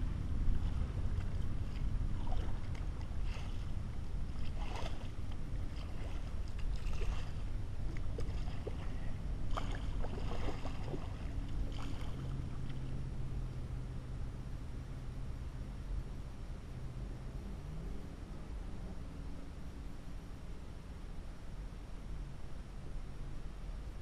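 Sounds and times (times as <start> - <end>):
steady low rumble: 0.0 - 24.0
paddle splashing in water: 0.5 - 13.0.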